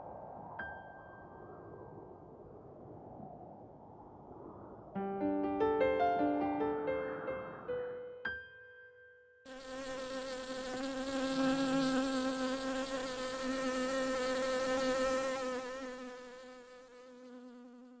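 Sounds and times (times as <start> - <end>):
bee buzzing: 9.5 - 18.0.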